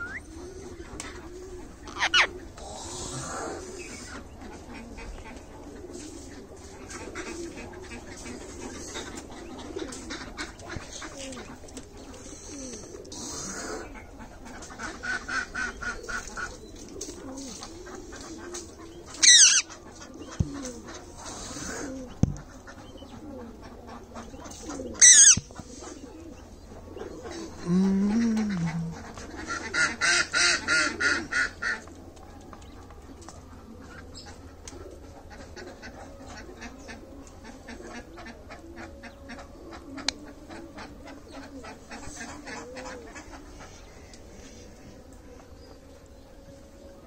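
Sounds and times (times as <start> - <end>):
low voice-like bird note: 0.0 - 4.3, 24.4 - 29.4
parakeet screeching: 1.9 - 2.3, 19.2 - 19.6, 25.0 - 25.5
harsh chattering calls: 19.2 - 19.7, 25.0 - 25.5.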